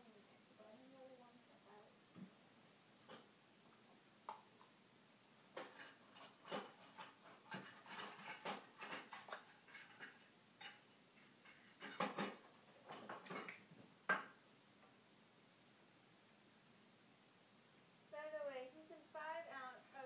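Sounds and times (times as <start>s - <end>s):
metal kitchenware clinking: 5.6s - 10.8s, 11.4s - 14.4s.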